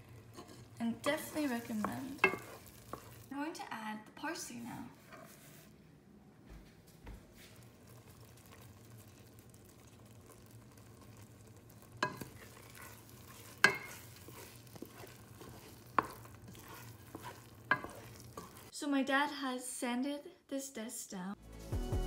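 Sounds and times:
wooden spoon stirring in pot: 0.0 - 3.4, 4.4 - 5.8, 7.4 - 18.7
faint sizzle: 0.0 - 5.8, 7.2 - 18.8
spoon knocking against pot: 1.8 - 3.0, 13.6 - 14.0.

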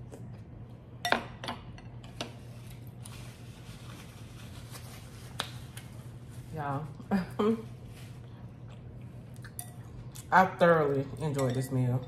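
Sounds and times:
low steady hum: 0.0 - 12.0
faint eating noises: 5.3 - 12.0.

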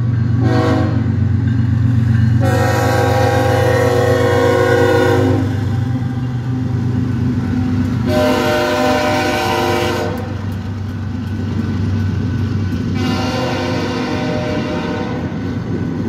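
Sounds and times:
freight train rumbling: 0.0 - 16.0
locomotive horn: 0.4 - 1.2, 2.4 - 5.7, 8.0 - 10.4, 12.9 - 15.4.

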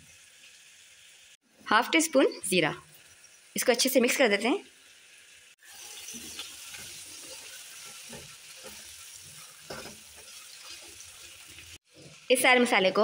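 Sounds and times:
vegetables sizzling in a wok: 0.0 - 13.0
spatula scraping wok: 5.6 - 12.3.

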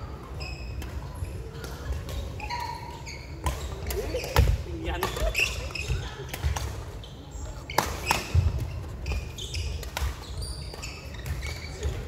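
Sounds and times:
shoe squeaks: 0.3 - 1.6, 2.2 - 12.0
racket hitting shuttlecock: 7.7 - 12.0.

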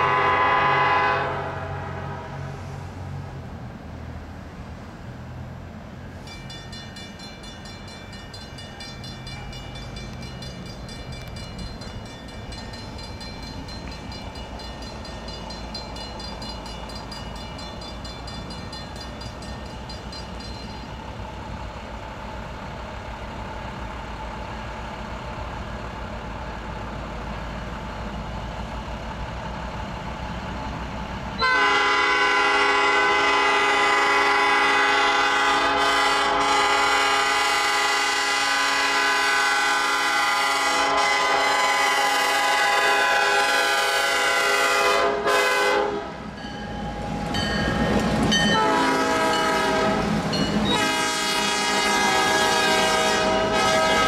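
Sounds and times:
train air horn: 0.0 - 3.0, 31.4 - 46.2, 48.5 - 54.0
diesel locomotive rumble: 0.0 - 54.0
faint crossing bell ringing: 6.2 - 21.1, 46.4 - 48.6, 50.3 - 50.7.

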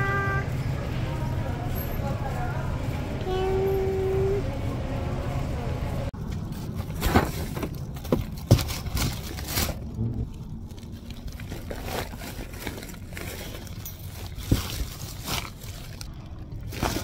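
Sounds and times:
plastic bags rustling: 6.5 - 17.0.

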